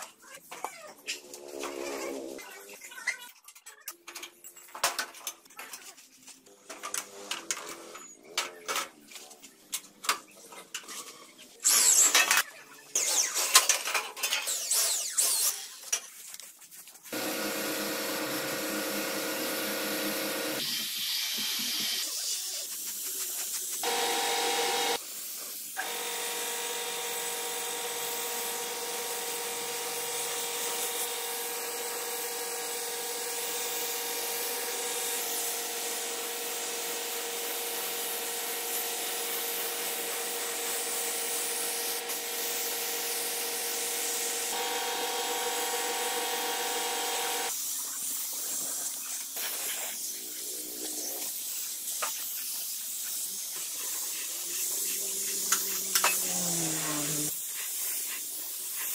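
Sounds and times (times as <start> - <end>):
spray gun hissing: 29.1 - 44.6.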